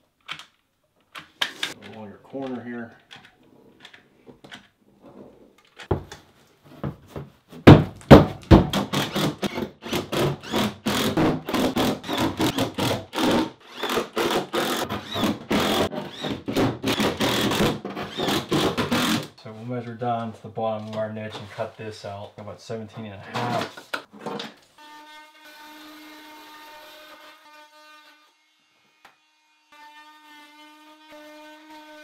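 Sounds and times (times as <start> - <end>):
loud knocks: 7.6 - 8.9
impact driver hammering screws: 8.2 - 19.3.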